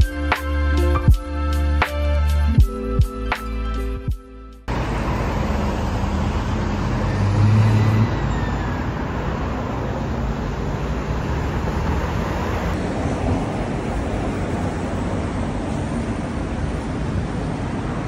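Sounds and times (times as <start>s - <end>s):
passing cars and buses: 0.0s - 18.0s
low engine hum: 4.7s - 18.0s.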